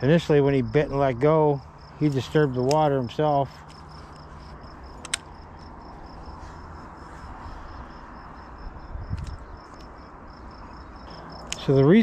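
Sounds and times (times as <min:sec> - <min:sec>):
insect chirping: 0:00.0 - 0:12.0
sharp click: 0:05.0 - 0:05.7.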